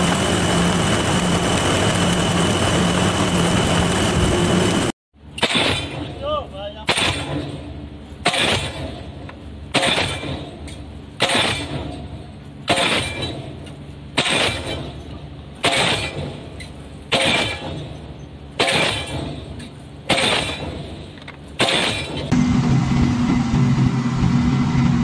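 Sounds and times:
pile hammer strikes: 5.4 - 7.6, 8.2 - 16.5, 17.1 - 18.0, 18.6 - 22.3.

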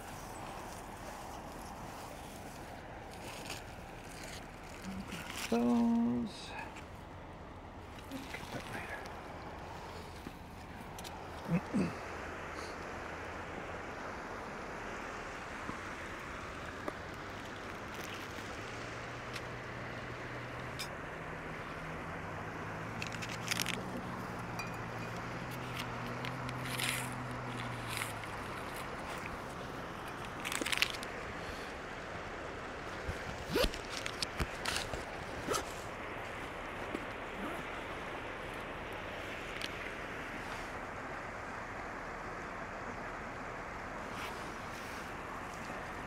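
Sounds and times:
clothing and gear rustling: 0.0 - 6.0, 22.9 - 31.8, 32.8 - 40.8, 44.0 - 46.0
river running over rocks: 0.0 - 46.0.

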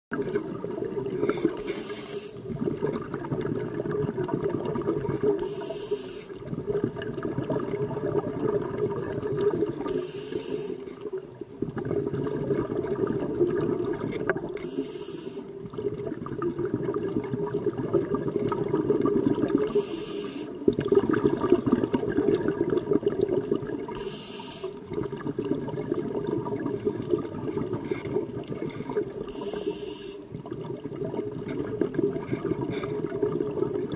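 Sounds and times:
regulator inhalation hiss: 1.6 - 2.4, 5.4 - 6.4, 9.9 - 10.9, 14.6 - 15.5, 19.7 - 20.6, 24.0 - 24.8, 29.3 - 30.3
gurgling exhaust bubbles: 2.4 - 5.6, 6.4 - 10.0, 11.2 - 14.6, 15.6 - 19.9, 20.6 - 24.0, 24.8 - 29.5, 30.2 - 33.9.

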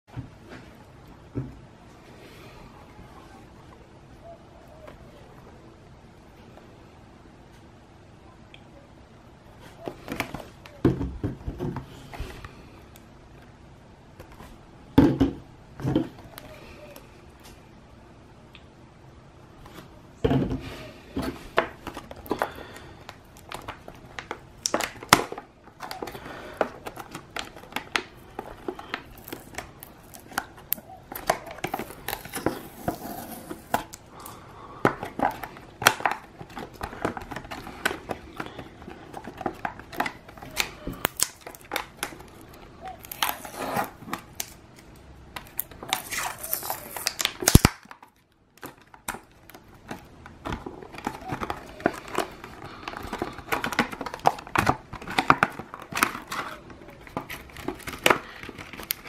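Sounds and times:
plastic and card rustling: 19.6 - 59.0.

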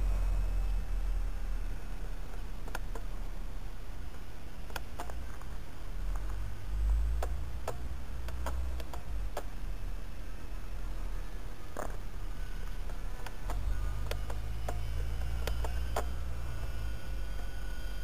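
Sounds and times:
sharp clicks: 4.1 - 5.5, 7.2 - 9.6, 12.6 - 16.2.

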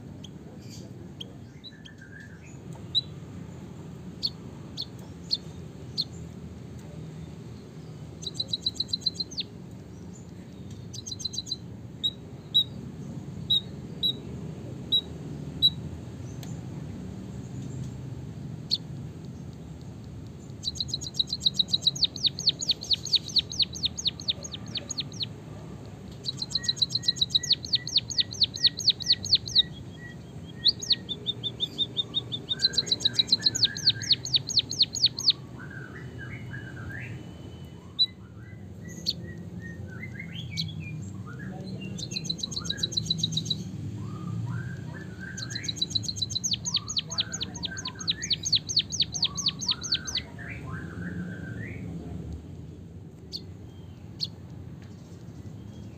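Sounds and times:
soft low bird chirping: 0.0 - 14.3, 18.6 - 55.9
bird singing high trills: 8.2 - 9.5, 10.9 - 12.7, 20.6 - 25.3, 26.2 - 51.8.

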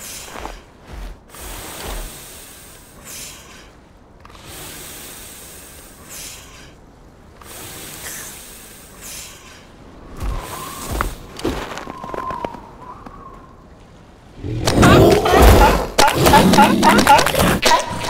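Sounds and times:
hissing breath: 0.0 - 11.3
steady windy hiss: 0.0 - 17.7.

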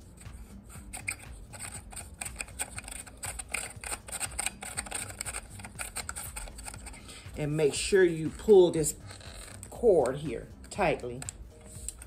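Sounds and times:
lamp socket clicking and scraping: 0.8 - 7.2, 8.8 - 12.0.

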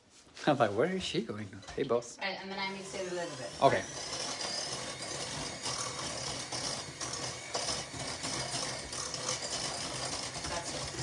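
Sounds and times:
electric hand mixer beating batter: 2.4 - 11.0.

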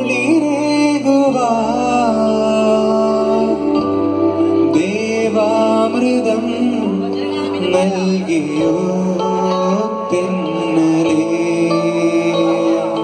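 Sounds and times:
live band music over speakers: 0.0 - 13.0
sustained keyboard chords: 0.0 - 13.0.

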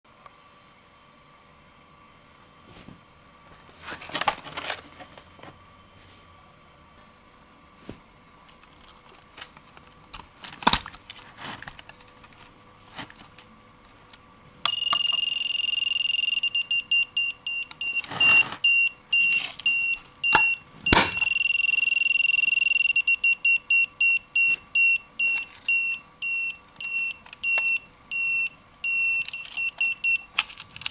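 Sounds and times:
shrill electronic beeps: 14.7 - 30.2.

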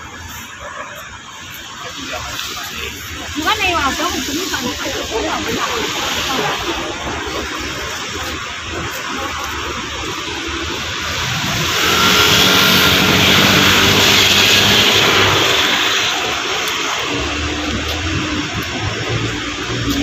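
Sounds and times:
vehicle engine passing by: 9.1 - 20.0.

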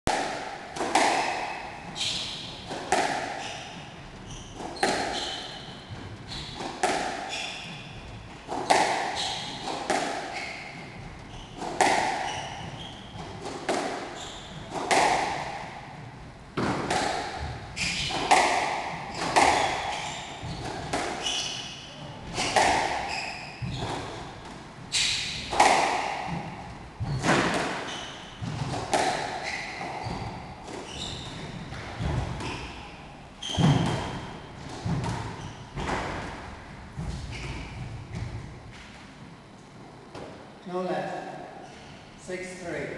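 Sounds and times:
racket hitting squash ball: 0.1 - 39.3
shoes squeaking on wooden floor: 1.2 - 13.5, 14.1 - 14.8, 17.4 - 25.6, 27.0 - 34.2, 37.1 - 38.3.

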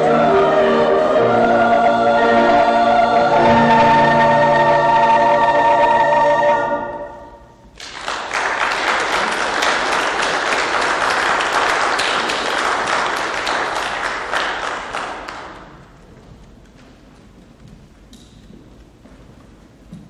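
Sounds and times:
church choir singing chord: 0.0 - 7.6
congregation applauding: 7.8 - 15.9.

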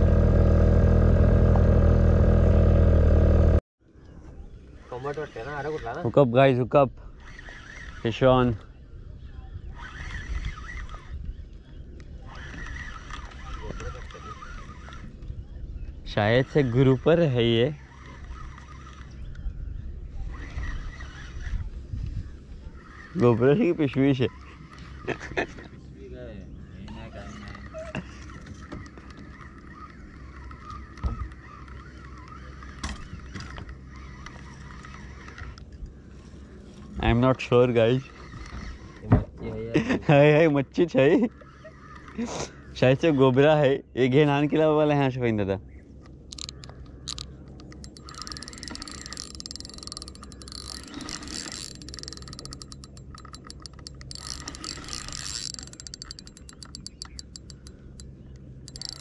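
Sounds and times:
fishing reel whirring: 7.1 - 8.7, 9.6 - 15.5, 16.3 - 25.7, 27.4 - 35.6, 37.8 - 39.0, 41.0 - 42.2, 46.3 - 59.0.

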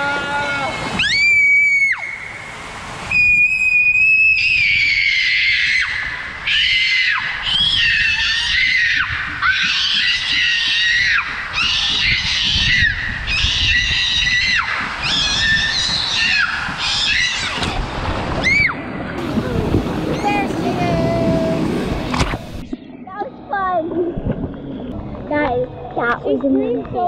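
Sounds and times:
rushing water: 0.0 - 22.8
girl screaming: 3.1 - 17.6
inner tube rumbling on slide: 7.6 - 22.8.

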